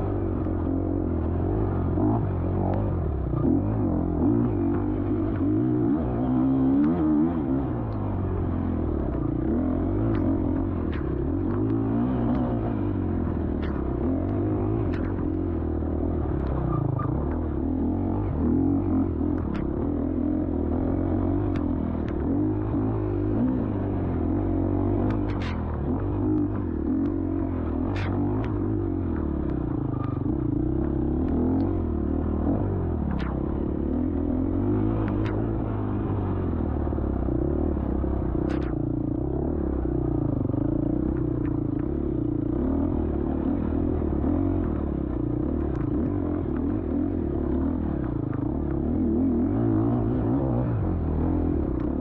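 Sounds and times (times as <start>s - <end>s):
dirt bike engine revving: 0.0s - 8.6s
sharp clacks from bike: 25.1s - 25.7s.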